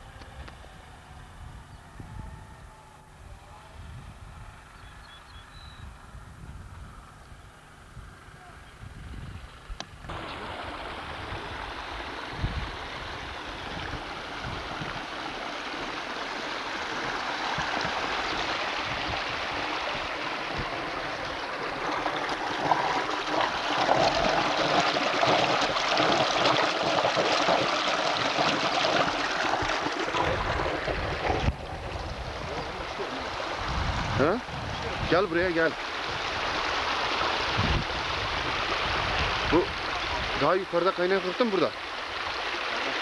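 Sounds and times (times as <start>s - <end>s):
stream rushing over stones: 10.1s - 43.0s.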